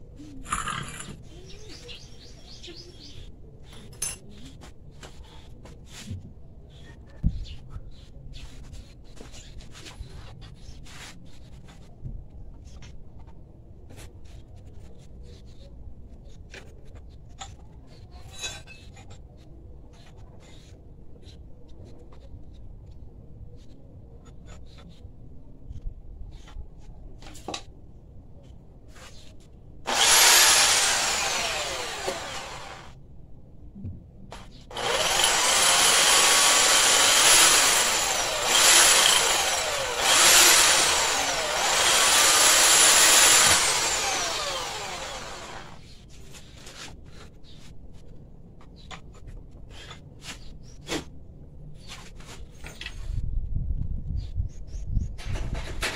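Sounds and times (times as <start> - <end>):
electric power tool whining: 29.9 - 33.0, 34.7 - 45.8.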